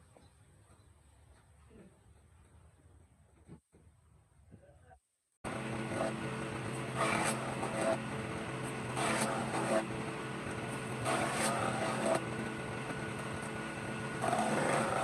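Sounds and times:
power tool motor running: 0:05.5 - 0:15.0.

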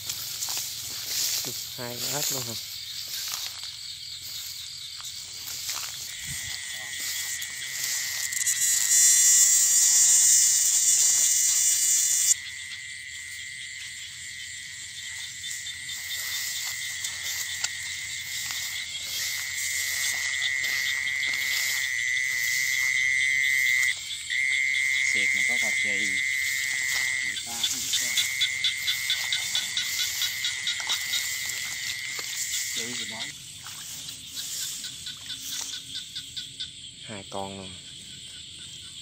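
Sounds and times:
frogs croaking: 0:00.0 - 0:39.0
insects chirring: 0:00.0 - 0:39.0
loud high hissing buzz: 0:06.1 - 0:12.4.

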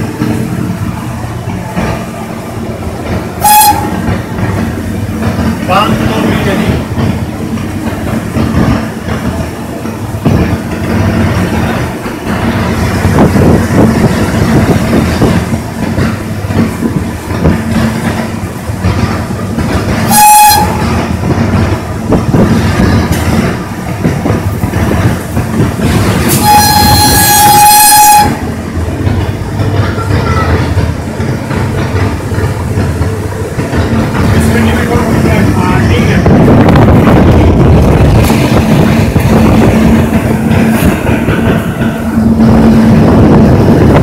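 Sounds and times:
locomotive rumble and track clatter: 0:00.0 - 0:44.0
train horn blast: 0:03.4 - 0:04.1, 0:20.1 - 0:21.0, 0:26.3 - 0:28.4.

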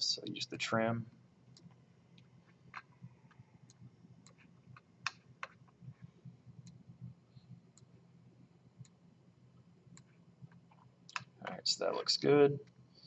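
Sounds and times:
faint low hum: 0:00.0 - 0:13.0
computer mouse clicking: 0:01.5 - 0:05.8, 0:06.6 - 0:06.8.

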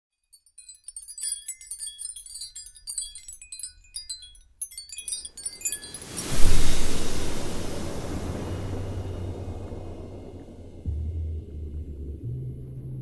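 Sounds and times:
sparkling chime tinkles: 0:00.1 - 0:10.4
whoosh into loud hit: 0:06.2 - 0:12.3.

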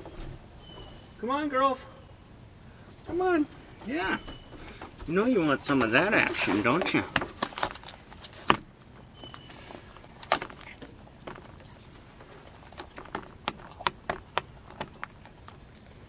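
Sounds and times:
beaks tapping a dish: 0:09.0 - 0:16.0.

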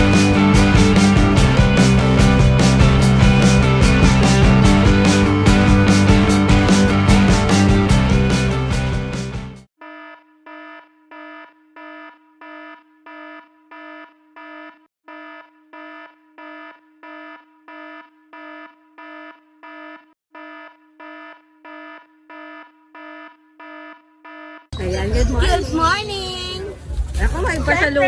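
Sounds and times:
rock music: 0:00.0 - 0:09.7.

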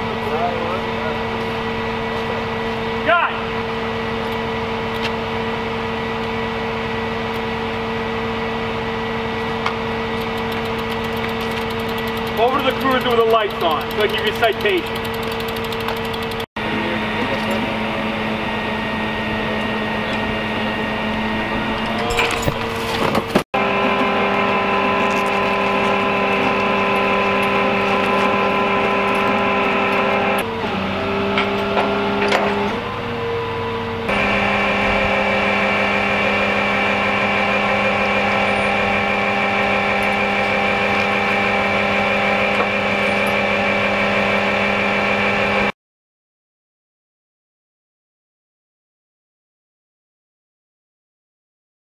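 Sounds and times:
large vehicle engine idling: 0:00.0 - 0:30.6.

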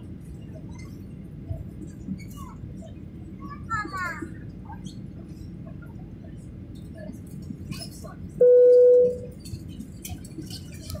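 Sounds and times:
low cabin hum: 0:00.0 - 0:11.0
electronic chime tone: 0:08.4 - 0:09.2.

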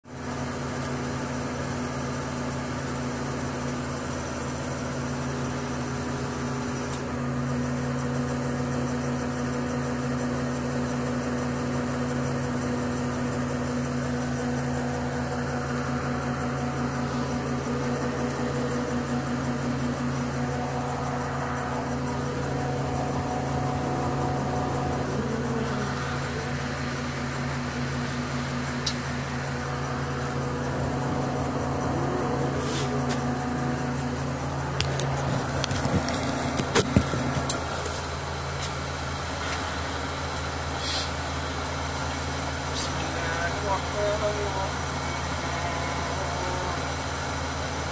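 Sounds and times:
crane engine humming: 0:00.0 - 0:47.9.

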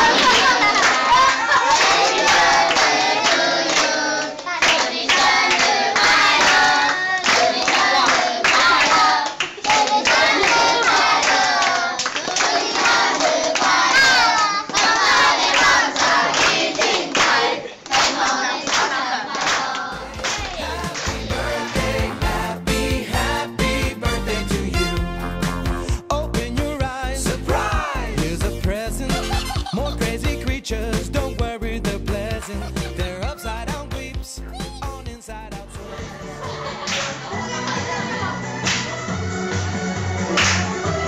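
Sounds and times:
children singing together: 0:00.0 - 0:23.9
hand clapping: 0:00.2 - 0:22.3, 0:36.8 - 0:37.2, 0:38.7 - 0:39.0, 0:40.4 - 0:40.8.

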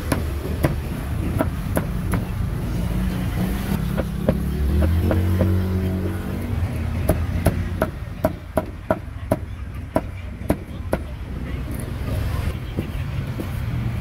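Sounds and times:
cleaver chopping on wooden block: 0:00.0 - 0:02.3.

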